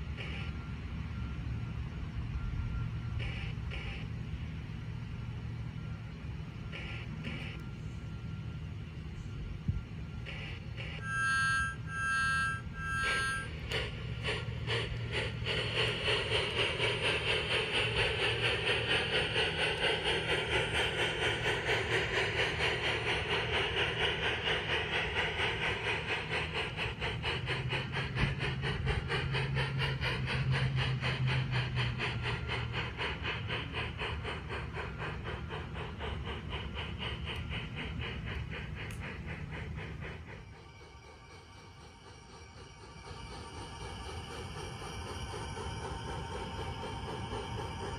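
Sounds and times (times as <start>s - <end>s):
model steam train chuffing: 0.0s - 47.9s
high two-note train whistle: 10.8s - 13.7s.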